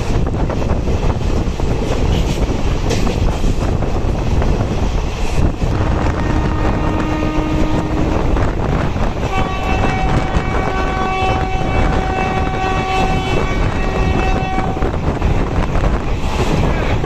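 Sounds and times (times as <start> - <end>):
train running rumble: 0.0 - 17.0
wind: 0.0 - 17.0
train horn long blast: 5.7 - 8.6, 9.2 - 15.0.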